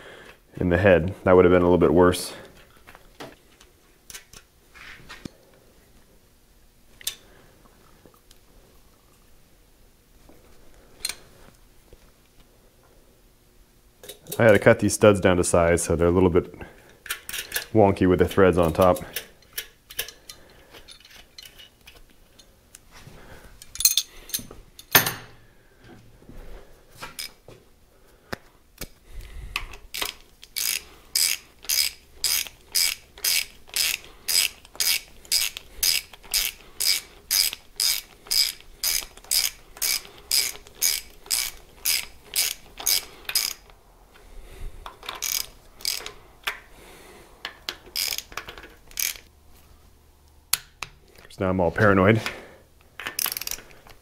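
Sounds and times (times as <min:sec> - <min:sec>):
socket ratchet clicking: 0:29.6 - 0:43.8, 0:44.9 - 0:46.6, 0:47.5 - 0:49.3, 0:53.0 - 0:53.8.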